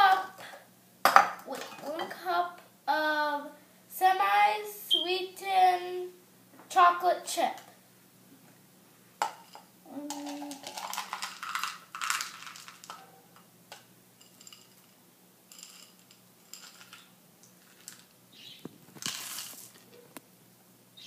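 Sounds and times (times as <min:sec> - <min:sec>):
chocolate chips rattling when poured: 0:10.1 - 0:13.0, 0:14.2 - 0:18.1, 0:19.0 - 0:19.8
crinkly bag rustling: 0:10.1 - 0:13.0, 0:18.8 - 0:20.0.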